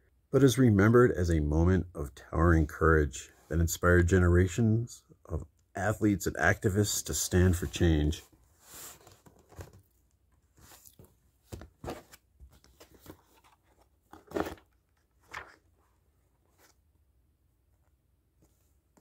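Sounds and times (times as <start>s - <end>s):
book pages turning: 8.7s - 16.8s.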